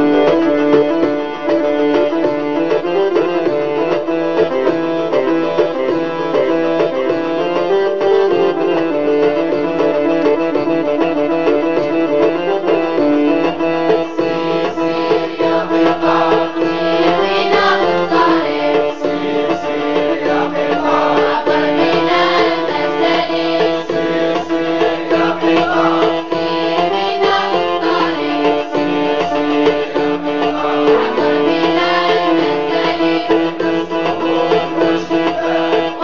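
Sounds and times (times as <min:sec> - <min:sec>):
person singing: 0:14.2 - 0:36.0.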